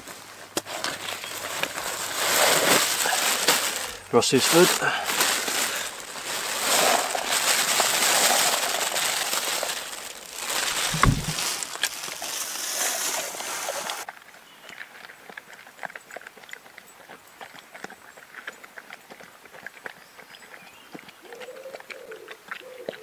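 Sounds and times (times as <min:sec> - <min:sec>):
plastic bag rustling: 0:00.0 - 0:14.1
dog crunching food: 0:01.4 - 0:20.1
dry kibble poured into bowl: 0:01.8 - 0:14.0
dull thump: 0:10.8 - 0:11.6.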